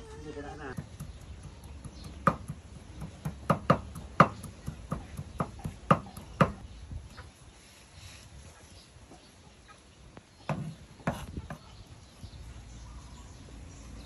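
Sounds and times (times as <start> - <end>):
cleaver chopping on wooden block: 0.8 - 6.6.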